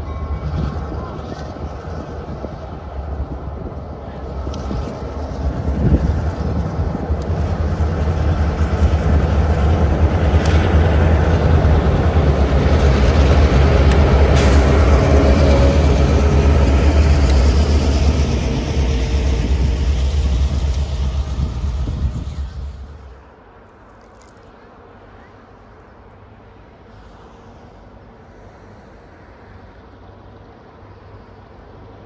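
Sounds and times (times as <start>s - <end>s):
locomotive engine rumble: 0.0s - 24.0s.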